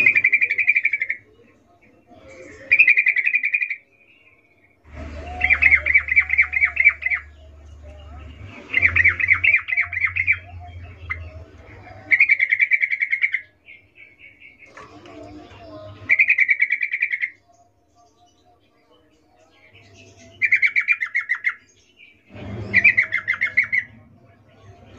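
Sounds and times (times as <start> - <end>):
bird rapid chattering calls: 16.1 - 17.4.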